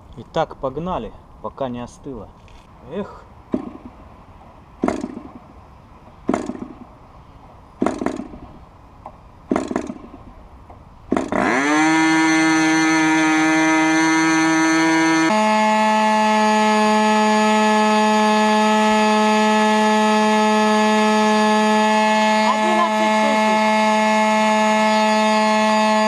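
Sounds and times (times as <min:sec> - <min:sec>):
model engine starting pops: 0:04.8 - 0:05.5, 0:06.3 - 0:06.9, 0:07.8 - 0:11.6
model engine high-pitched buzz: 0:11.1 - 0:26.0.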